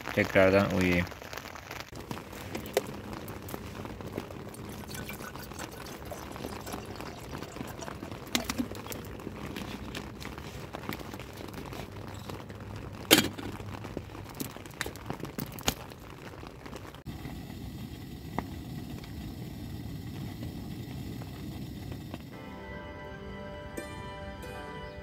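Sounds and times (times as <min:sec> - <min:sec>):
rain pattering on tent: 0:00.0 - 0:22.4
water pouring into kettle: 0:01.9 - 0:14.5.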